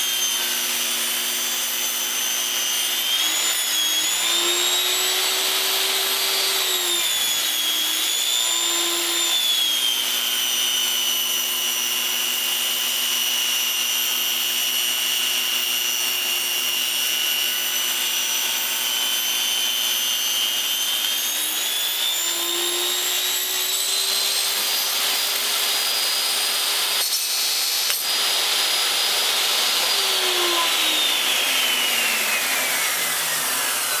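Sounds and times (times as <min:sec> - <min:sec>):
table saw motor whining: 0:00.0 - 0:34.0.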